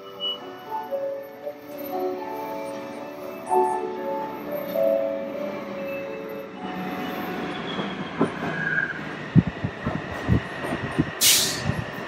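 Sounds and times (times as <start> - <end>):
train wheels rumbling on rail: 6.6 - 12.0.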